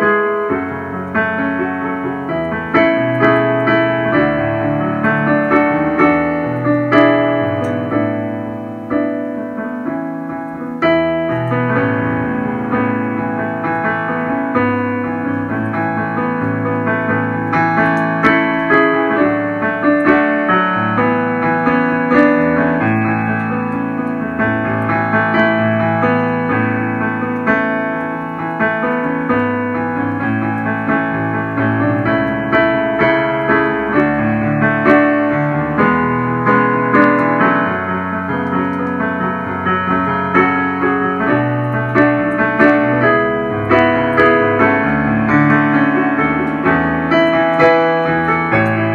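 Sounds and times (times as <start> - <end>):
hymn on piano: 0.0 - 48.9.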